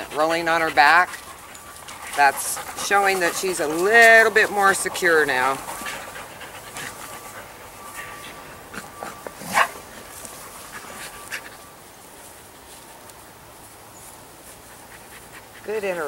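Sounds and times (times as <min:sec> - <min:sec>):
dog snorting: 0:00.0 - 0:09.8
faint thin whine: 0:05.9 - 0:14.6.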